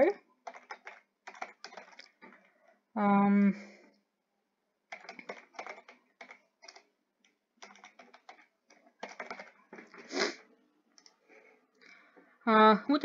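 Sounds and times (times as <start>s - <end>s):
computer keyboard typing: 0.4s - 2.5s, 4.9s - 10.0s, 11.0s - 11.2s.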